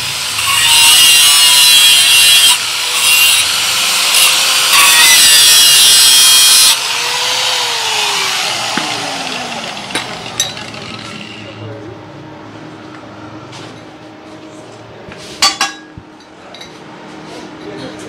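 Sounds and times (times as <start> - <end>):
angle grinder cutting metal: 0.0 - 11.6
motor winding down: 5.4 - 11.6.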